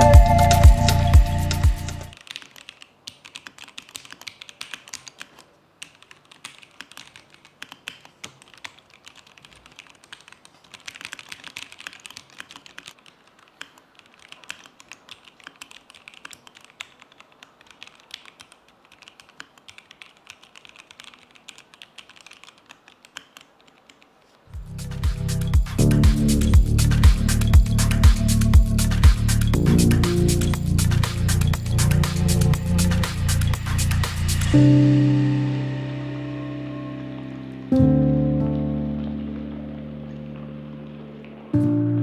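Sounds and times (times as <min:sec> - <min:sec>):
typing on mechanical keyboard: 0:02.1 - 0:24.4.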